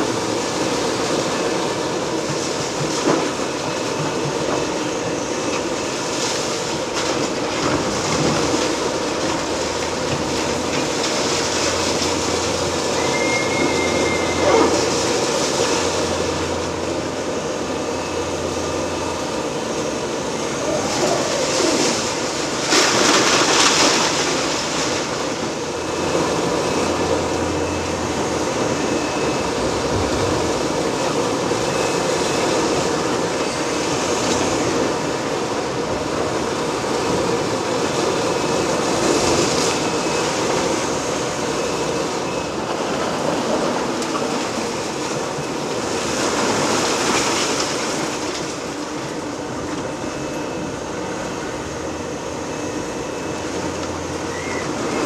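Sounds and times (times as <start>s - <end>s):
heavy machine hydraulic noise: 0.0s - 55.0s
high metallic squeal: 12.7s - 16.2s.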